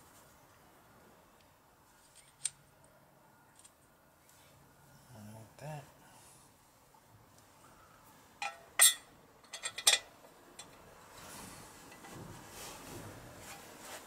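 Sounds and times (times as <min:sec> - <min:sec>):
metal parts clinking on engine casing: 0:08.4 - 0:10.8.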